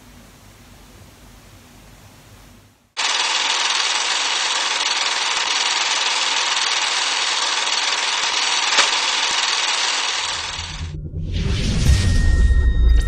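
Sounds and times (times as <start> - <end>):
film projector whirring: 3.0 - 10.9
sharp click: 8.6 - 9.5.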